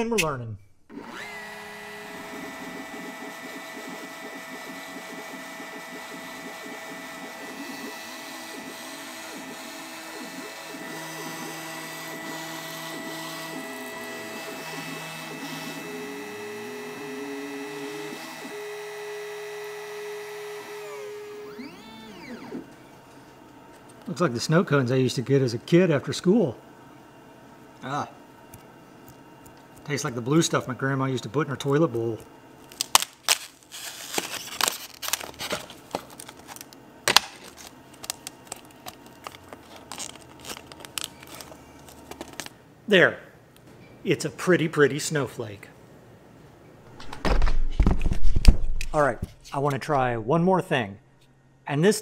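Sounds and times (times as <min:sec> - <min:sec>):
router spindle whine: 0:00.9 - 0:22.9
thin ice crackling and clicking: 0:31.7 - 0:42.6.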